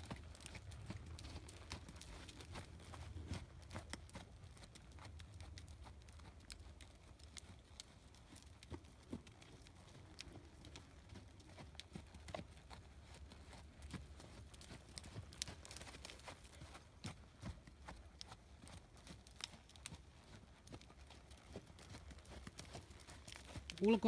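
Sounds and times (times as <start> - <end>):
horse hoofbeats on sand: 0.0 - 6.4, 7.4 - 24.0.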